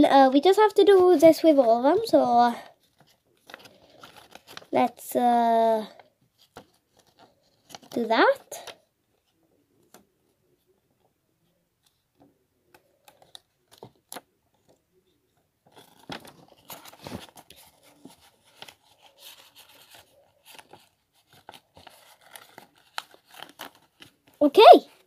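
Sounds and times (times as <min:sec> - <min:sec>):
paper rustling and crinkling: 0:00.9 - 0:04.9, 0:05.8 - 0:08.8, 0:11.9 - 0:14.8, 0:15.6 - 0:25.0.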